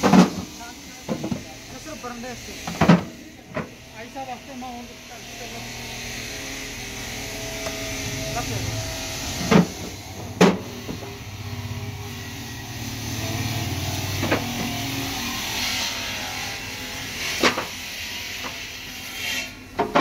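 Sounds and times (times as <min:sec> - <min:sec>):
vehicle engine humming: 0:03.7 - 0:15.7.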